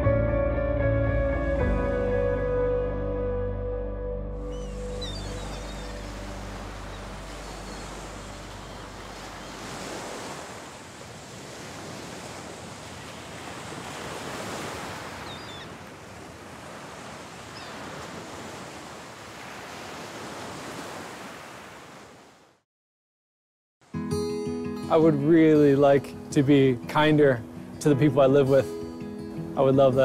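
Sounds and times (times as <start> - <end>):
faint high bird calls: 4.5 - 10.0, 15.2 - 15.8, 17.4 - 17.9
ocean surf washing onto beach: 4.6 - 22.4.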